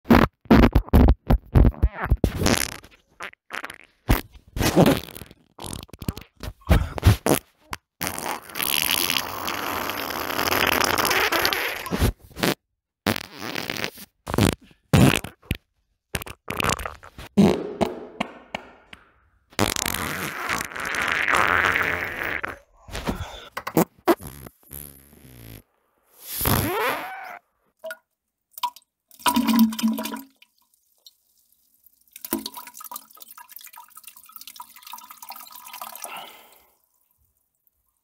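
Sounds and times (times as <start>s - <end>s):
farts: 0.1s - 17.6s, 19.6s - 27.4s.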